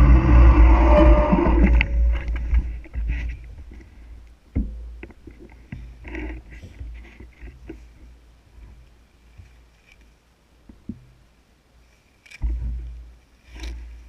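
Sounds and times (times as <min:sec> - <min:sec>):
mountain bike rushing downhill: 0:00.0 - 0:02.9.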